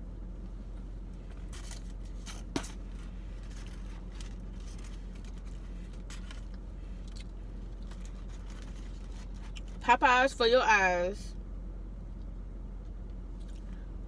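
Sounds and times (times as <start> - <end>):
car cabin hum: 0.0 - 14.0
food packaging rustling: 1.3 - 9.8.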